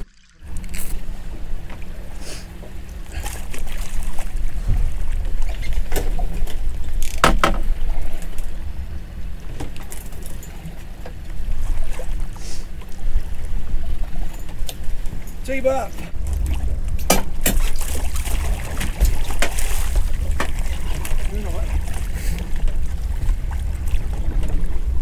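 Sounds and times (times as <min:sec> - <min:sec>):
rumble of wind and water: 0:00.0 - 0:25.0
sharp knocks on boat: 0:04.6 - 0:07.9, 0:16.0 - 0:21.2.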